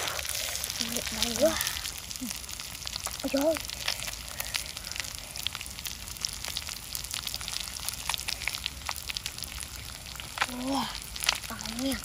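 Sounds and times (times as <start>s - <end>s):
fish sizzling on stone slab: 0.0s - 12.0s.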